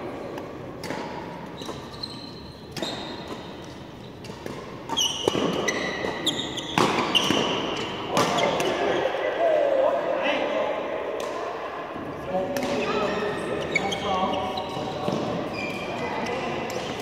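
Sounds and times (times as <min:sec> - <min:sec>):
rackets hitting shuttlecock: 0:00.3 - 0:01.9, 0:02.6 - 0:08.9, 0:12.5 - 0:12.9
shoes squeaking on floor: 0:01.5 - 0:04.3, 0:04.9 - 0:08.7, 0:12.8 - 0:16.5.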